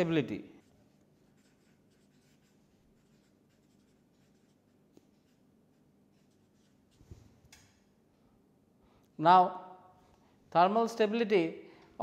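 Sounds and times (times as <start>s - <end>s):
marker pen writing on paper: 0.6s - 7.7s.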